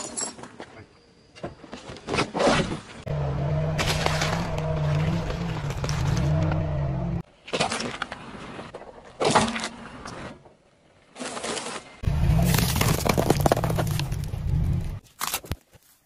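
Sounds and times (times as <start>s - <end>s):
car engine running: 3.1s - 7.2s
tyre crunching eggs: 11.3s - 16.0s.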